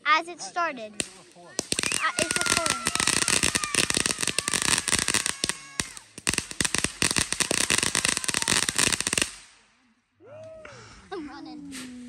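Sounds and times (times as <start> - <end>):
firework fountain crackling: 0.9 - 9.8.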